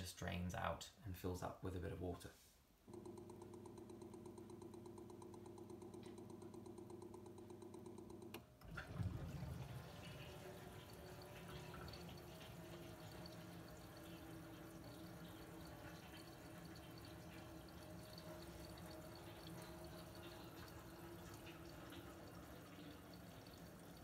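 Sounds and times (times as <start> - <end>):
pump ticking quickly: 2.9 - 24.0
water trickling and dripping: 8.7 - 24.0.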